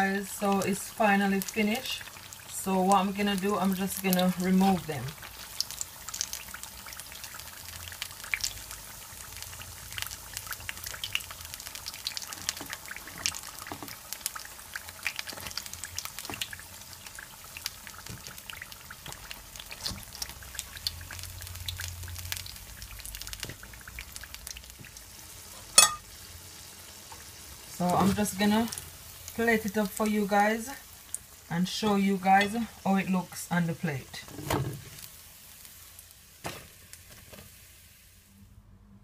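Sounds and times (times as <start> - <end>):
fritters sizzling in oil: 0.0 - 38.6
sharp clink: 25.8 - 26.0.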